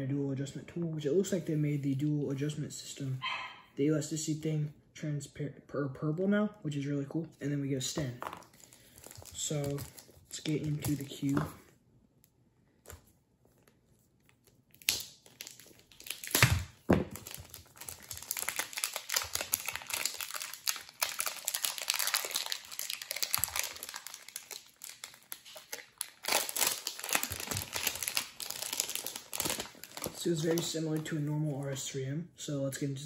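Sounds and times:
plastic packaging crinkling: 8.4s - 11.4s, 12.8s - 31.6s.

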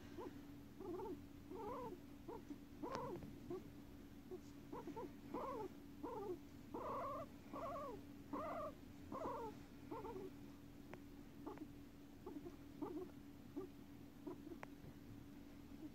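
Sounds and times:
guinea pig calling: 0.0s - 10.4s, 11.4s - 14.8s
guinea pig chirps: 0.1s - 10.4s, 11.0s - 14.8s.

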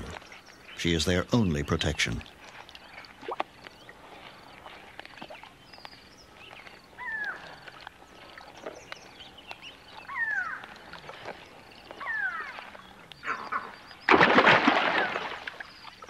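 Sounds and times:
crocodile hatchlings chirping: 8.5s - 16.0s.

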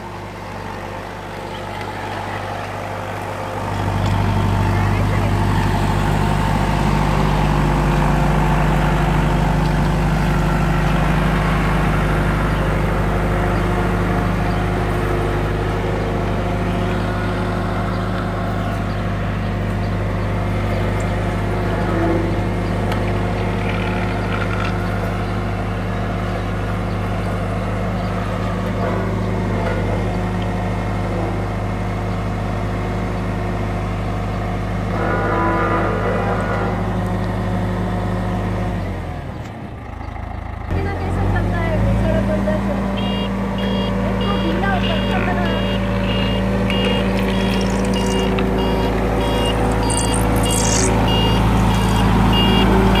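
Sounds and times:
road roller diesel engine humming: 0.0s - 53.0s.

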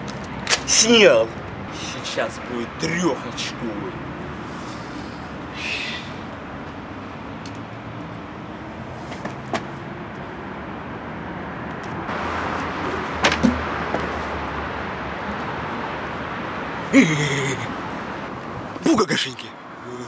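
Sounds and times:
street traffic hum: 0.0s - 20.0s.

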